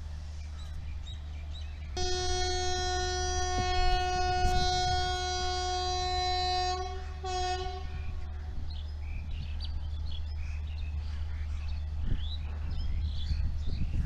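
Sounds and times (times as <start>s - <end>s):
steady low rumble: 0.0s - 14.0s
birds chirping: 0.4s - 14.0s
locomotive horn blasts: 2.0s - 8.4s.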